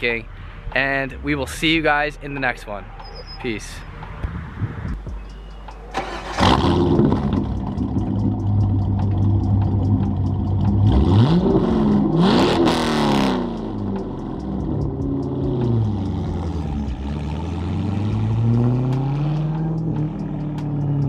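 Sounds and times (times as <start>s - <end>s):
car engine starting and revving: 5.7s - 21.0s.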